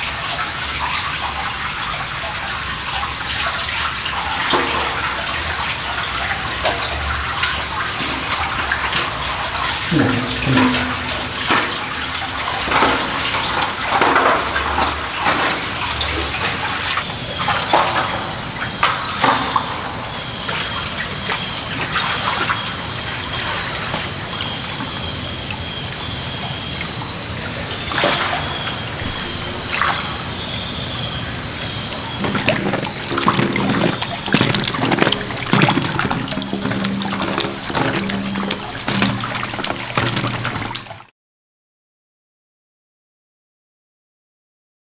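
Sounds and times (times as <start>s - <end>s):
shallow water trickling: 0.0s - 41.1s
footsteps splashing in water: 4.1s - 26.1s, 32.1s - 41.0s.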